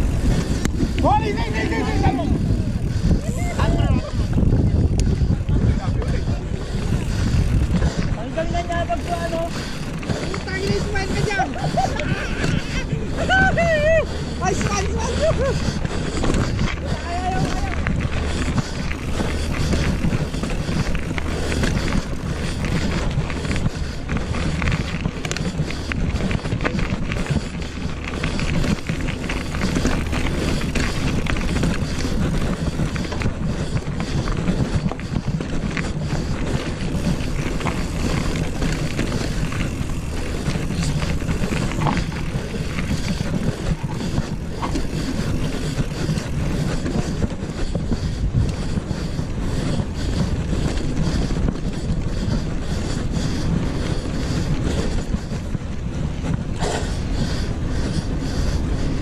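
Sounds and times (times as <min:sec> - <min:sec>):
wind on microphone: 0:00.0 - 0:59.0
bike knocks and rattles: 0:14.4 - 0:52.4.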